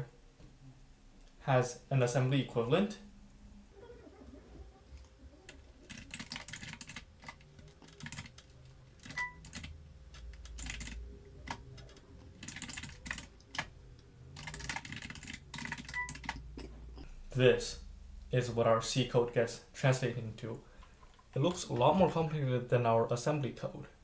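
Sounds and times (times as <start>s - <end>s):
computer keyboard typing: 5.0s - 16.4s.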